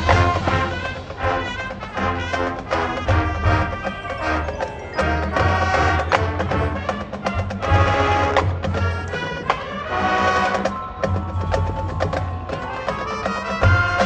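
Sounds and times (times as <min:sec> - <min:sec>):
sustained brass chords: 0:00.0 - 0:10.7
mallet percussion: 0:00.0 - 0:14.0
marching band playing: 0:00.0 - 0:14.0.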